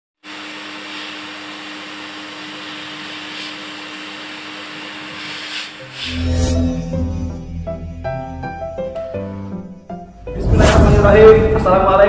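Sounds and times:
hair dryer blowing: 0.2 - 6.1.

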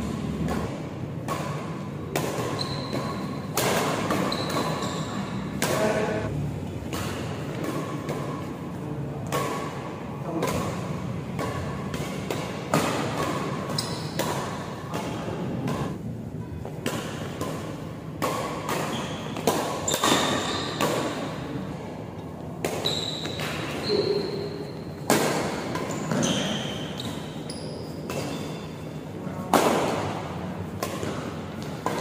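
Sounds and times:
rackets hitting shuttlecock: 0.0 - 21.8, 22.4 - 32.0
shoes squeaking on court: 2.3 - 6.3, 13.4 - 14.6, 18.8 - 21.1, 22.7 - 28.8.

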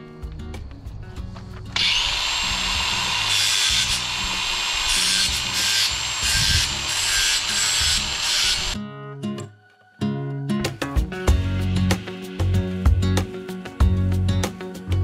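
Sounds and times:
angle grinder cutting wire: 1.8 - 8.8.

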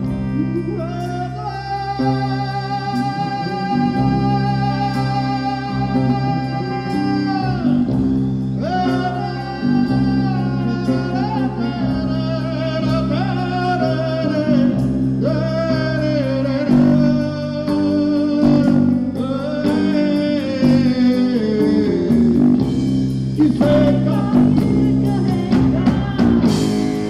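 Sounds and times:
electric bass guitar: 0.0 - 27.0
live band music: 0.0 - 27.0
person singing long wavering notes: 0.4 - 8.0.

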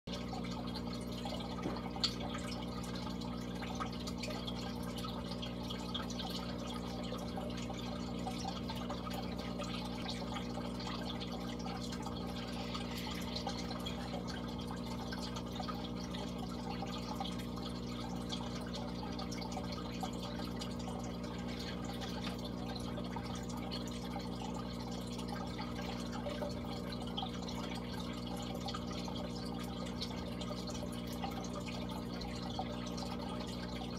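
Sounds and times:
pump humming: 0.1 - 33.9
water trickling and bubbling: 0.1 - 33.9.

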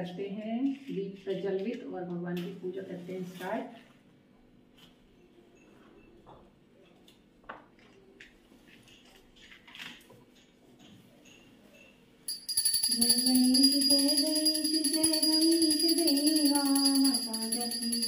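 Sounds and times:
ringing bells: 12.3 - 18.0
devotional song singing: 12.8 - 18.0.

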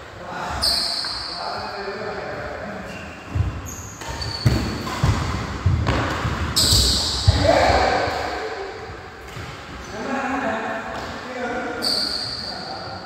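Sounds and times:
racket hitting shuttlecock: 4.0 - 8.2.

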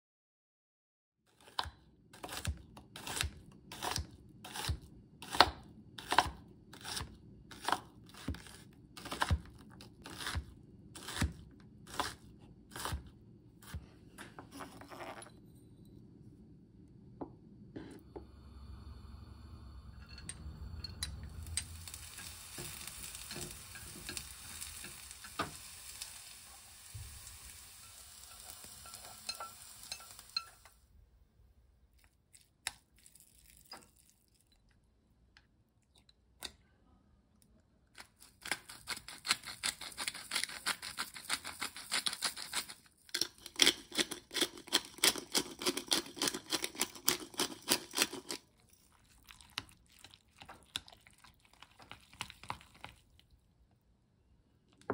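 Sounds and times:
onion sizzling in frying pan: 21.2 - 30.8.

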